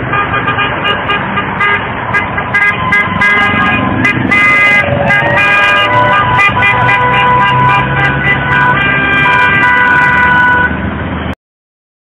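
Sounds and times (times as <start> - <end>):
car horns honking: 0.0 - 10.8
street noise: 0.0 - 11.4
siren rising: 2.8 - 10.8.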